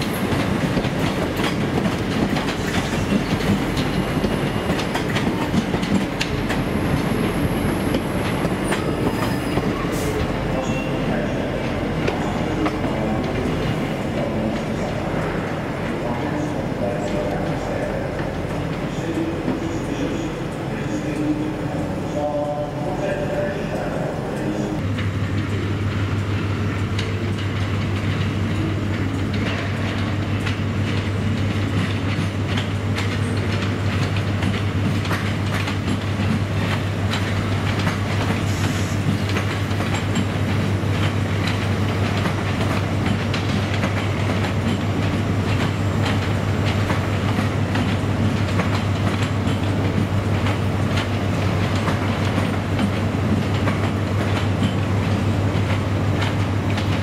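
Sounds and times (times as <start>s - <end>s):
train wheels clicking over rail joints: 0.0s - 22.6s, 24.8s - 57.0s.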